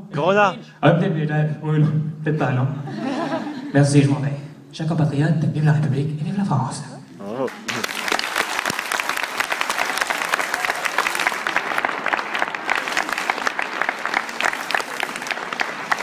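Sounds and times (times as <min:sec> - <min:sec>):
audience applauding: 0:07.5 - 0:16.0.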